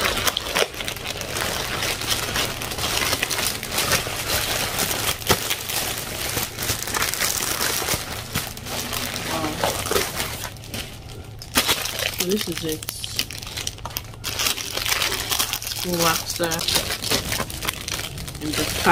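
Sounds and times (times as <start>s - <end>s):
plastic bag crinkling: 0.0s - 18.9s.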